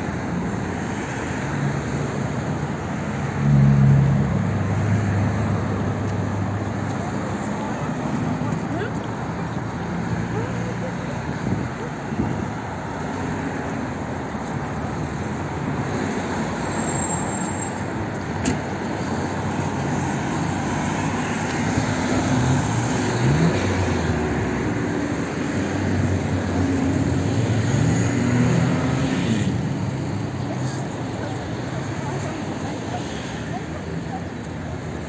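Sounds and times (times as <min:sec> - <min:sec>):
cars passing: 0:00.0 - 0:35.0
engines revving pulling away: 0:20.6 - 0:31.0.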